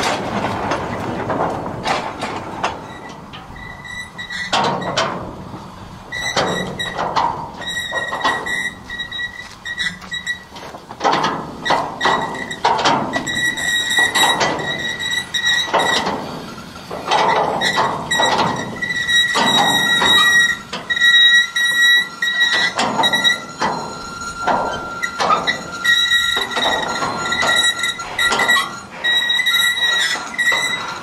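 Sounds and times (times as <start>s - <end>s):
wheels and couplings clanking: 0.0s - 31.0s
train wheels squealing: 2.8s - 5.0s, 6.1s - 7.0s, 7.6s - 10.5s, 11.6s - 16.8s, 17.6s - 31.0s.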